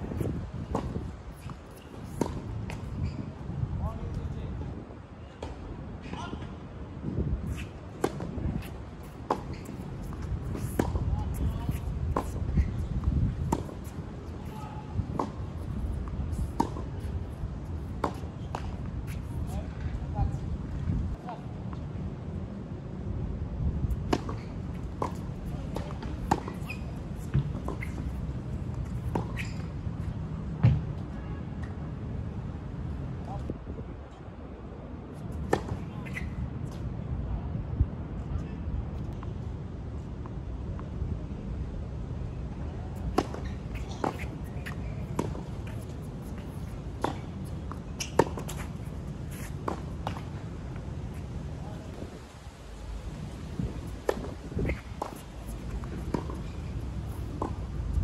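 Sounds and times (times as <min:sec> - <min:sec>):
racket striking tennis ball: 0:07.5 - 0:12.8, 0:43.1 - 0:50.3, 0:54.0 - 0:57.6
tennis racket hitting ball: 0:54.0 - 0:56.6.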